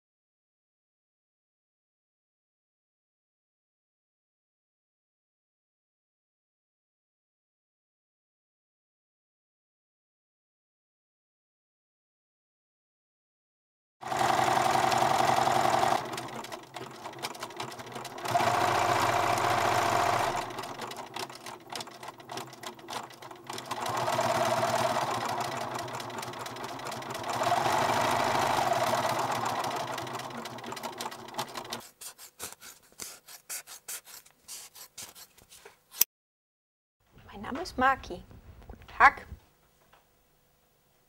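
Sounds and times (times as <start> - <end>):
sewing machine stitching: 14.0 - 31.9.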